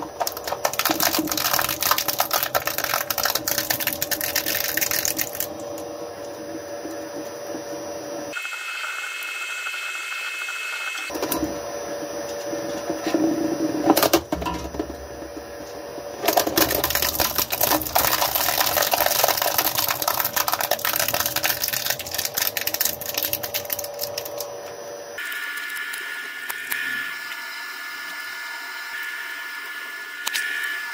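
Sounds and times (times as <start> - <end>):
plastic cracking and crunching: 0.0 - 5.8, 16.2 - 24.5
shredder running: 0.0 - 30.9.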